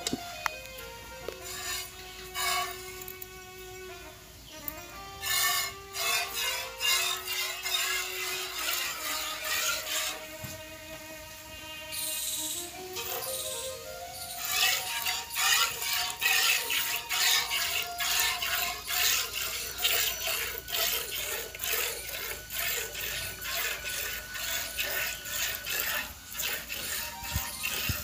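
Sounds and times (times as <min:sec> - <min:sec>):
milk squirting: 0:01.3 - 0:03.3, 0:05.2 - 0:10.3, 0:13.0 - 0:28.0.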